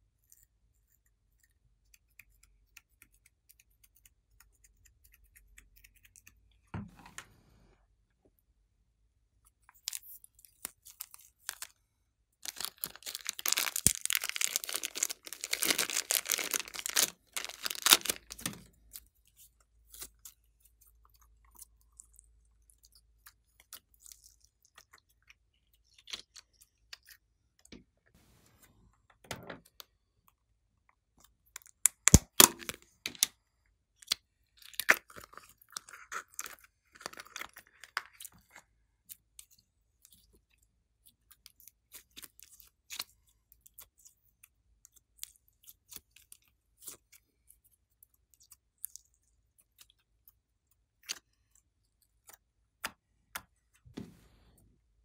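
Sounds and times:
slime crackling and squelching: 12.4s - 27.3s.

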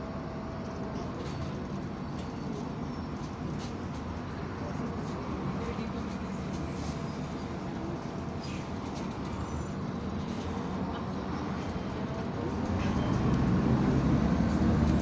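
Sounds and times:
bus engine rumble: 0.0s - 15.0s.

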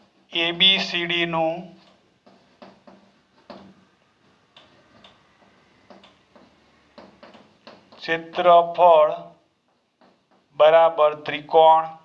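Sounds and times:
chalk tapping on blackboard: 1.8s - 8.8s, 9.6s - 10.6s.

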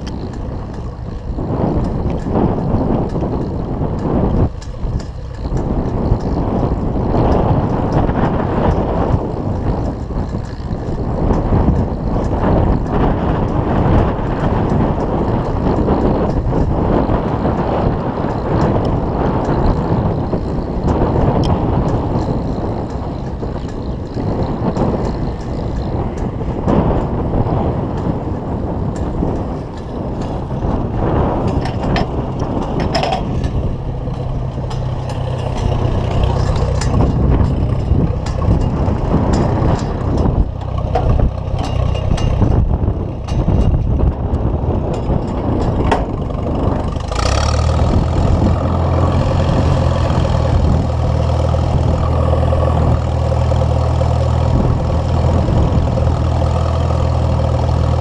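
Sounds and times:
tractor engine running: 0.0s - 58.0s
wind buffeting on microphone: 0.0s - 58.0s
plow knocks: 28.9s - 58.0s.

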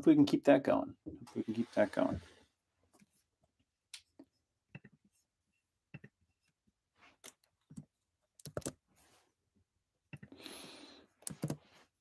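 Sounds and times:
computer clicking: 8.4s - 8.8s.

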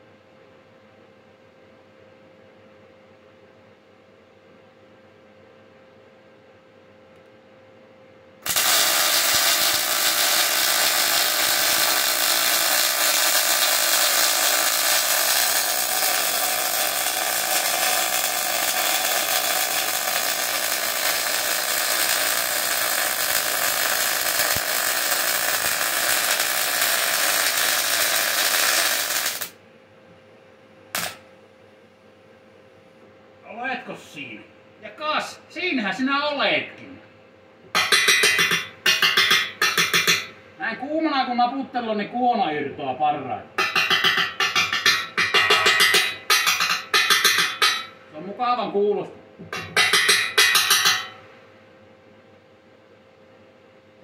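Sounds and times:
welding arc crackling: 8.4s - 29.6s, 30.9s - 31.2s, 43.6s - 47.9s.

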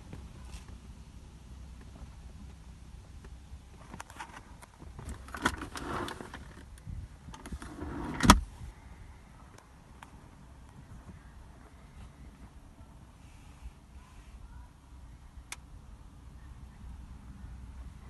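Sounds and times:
armrest latch click-thump: 7.4s - 8.4s.

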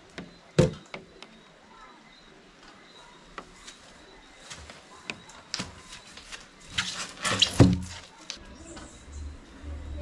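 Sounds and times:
foam rubbing and squeaking: 6.7s - 8.1s.

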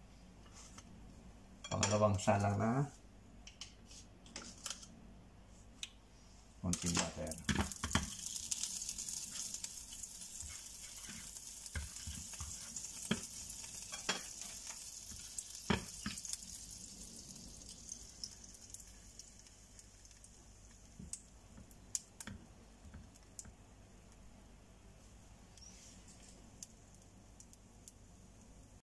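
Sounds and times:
spatula scraping and tapping pan: 6.8s - 16.4s
butter sizzling in a frying pan: 6.8s - 23.5s.

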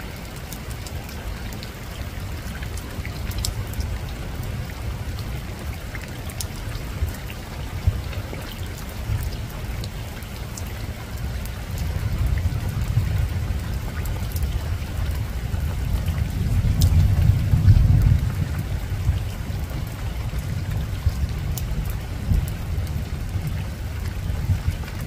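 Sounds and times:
rain falling on rooftop: 0.0s - 25.0s
distant thunder rumble: 11.2s - 25.0s.

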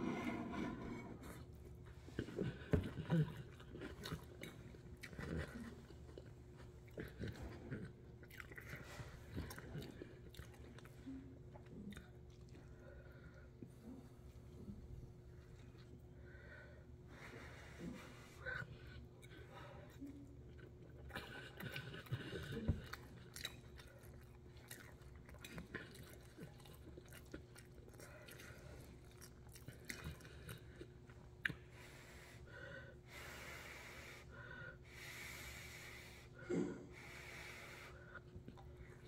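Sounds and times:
chewing noodles: 1.3s - 13.8s, 18.5s - 31.9s.

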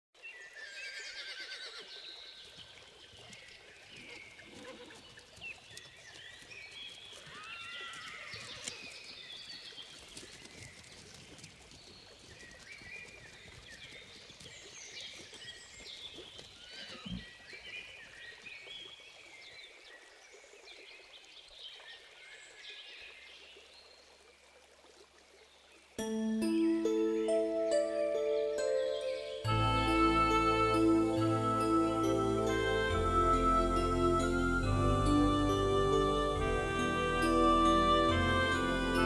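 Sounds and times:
horse whinnying: 0.6s - 1.9s.

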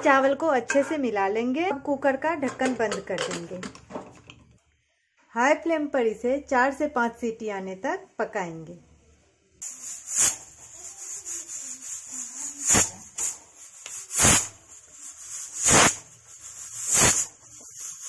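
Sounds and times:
pressure cooker whistling: 9.6s - 13.4s, 14.0s - 18.0s
steady high steam hiss: 9.6s - 18.0s.

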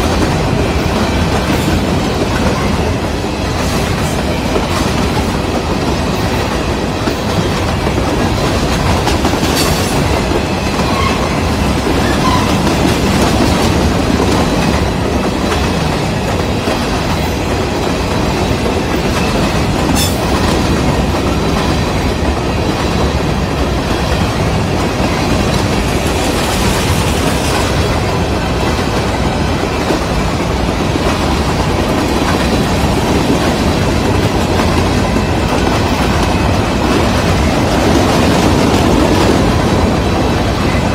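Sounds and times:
steel wheels rolling on rail: 0.0s - 40.9s.

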